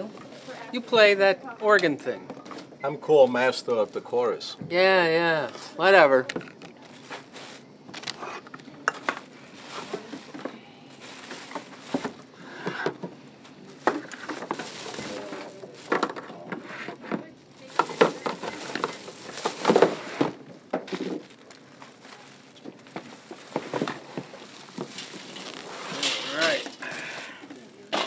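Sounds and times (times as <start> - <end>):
groceries and plastic bags clattering: 0.0 - 28.0
murmured voices: 25.8 - 28.0.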